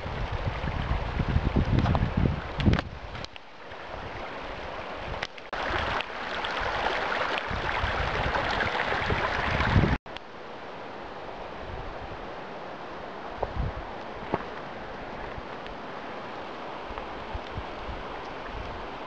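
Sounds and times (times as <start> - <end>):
wind buffeting microphone: 0.0 - 10.0, 13.3 - 16.0, 16.8 - 19.0
mountain stream rushing: 0.0 - 19.0.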